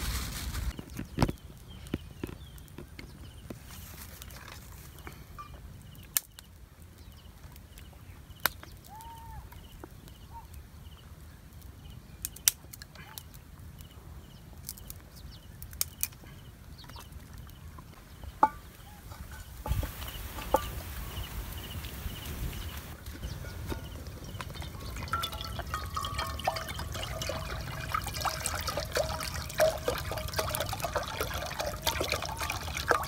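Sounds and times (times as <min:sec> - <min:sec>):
campfire crackling: 0:05.6 - 0:33.0
sticks being handled: 0:18.3 - 0:21.0
metal pot knocking: 0:23.3 - 0:33.0.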